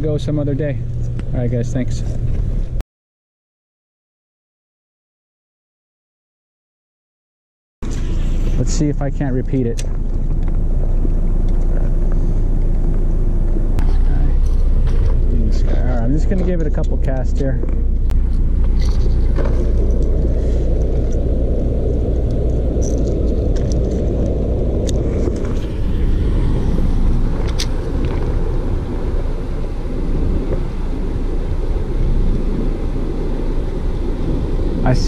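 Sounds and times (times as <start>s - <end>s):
wind buffeting microphone: 7.8s - 35.0s.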